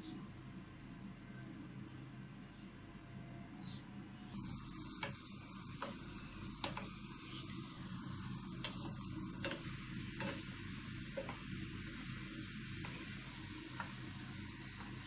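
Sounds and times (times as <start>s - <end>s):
balls sizzling in hot oil: 4.4s - 15.0s
wooden spatula clicking on pan: 6.6s - 7.0s.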